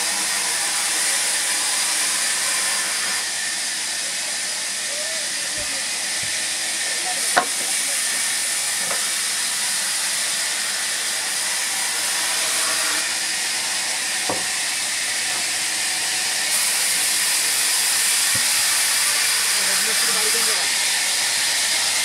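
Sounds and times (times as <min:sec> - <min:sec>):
sawmill saw hissing: 0:00.0 - 0:22.0
faint knocks of logs: 0:07.4 - 0:07.8, 0:14.3 - 0:14.5.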